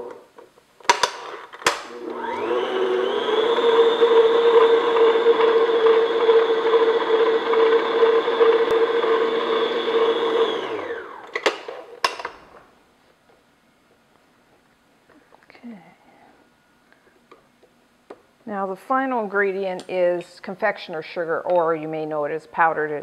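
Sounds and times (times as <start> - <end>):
stand mixer motor running: 1.9 - 11.4.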